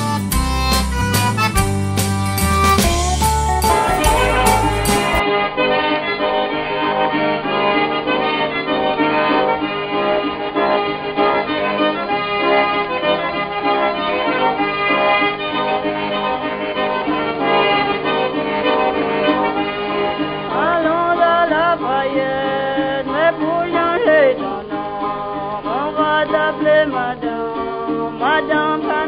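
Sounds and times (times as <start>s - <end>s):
accordion music: 0.0s - 29.0s.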